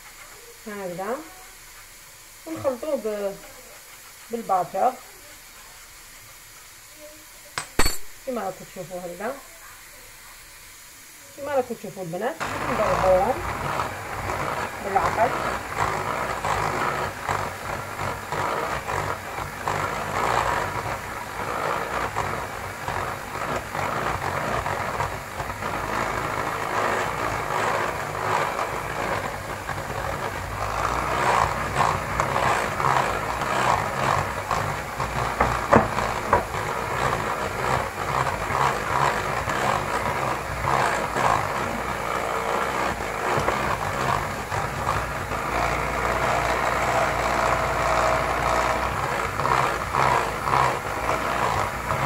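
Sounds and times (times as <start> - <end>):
electric hand mixer whisking: 11.4 - 52.0.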